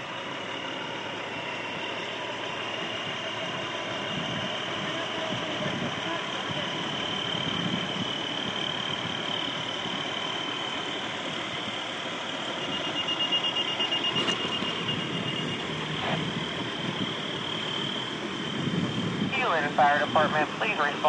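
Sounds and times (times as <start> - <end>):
steady high-pitched tone: 0.0 - 21.0
truck engine running: 0.0 - 21.0
rapid beeping: 12.4 - 18.6.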